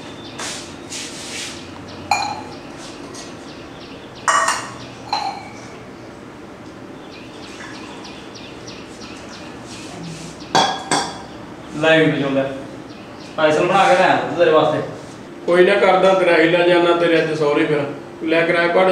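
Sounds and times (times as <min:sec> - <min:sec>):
dishes clinking: 0:02.1 - 0:03.4, 0:04.3 - 0:05.8, 0:10.5 - 0:11.3.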